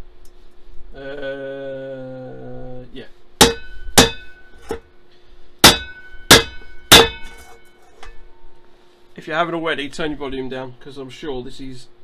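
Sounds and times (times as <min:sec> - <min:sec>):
steady low hum: 0:00.0 - 0:12.0
hammer clanging on metal wok: 0:03.4 - 0:04.8, 0:05.6 - 0:07.6.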